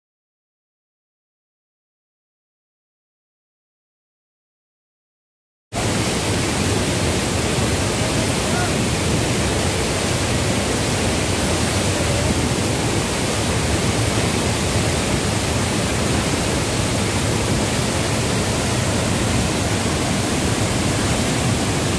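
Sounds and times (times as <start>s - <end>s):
waterfall rushing: 5.8s - 21.9s.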